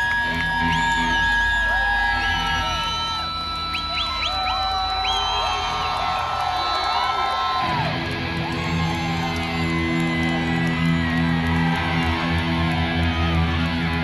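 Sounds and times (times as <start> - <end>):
crowd whooping and whistling: 0.0 - 14.0.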